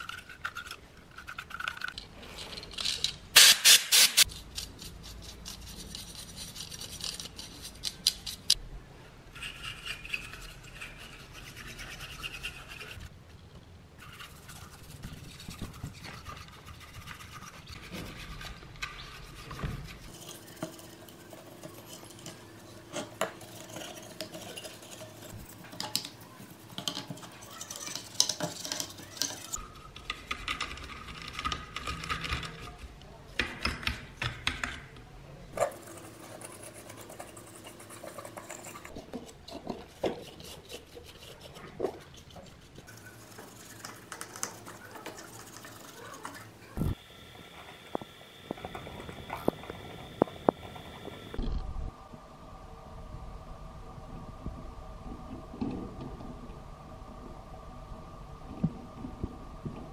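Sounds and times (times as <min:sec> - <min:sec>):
paintbrush scrubbing circuit board: 0:03.4 - 0:08.5, 0:09.4 - 0:13.1, 0:14.0 - 0:29.6, 0:35.6 - 0:47.0.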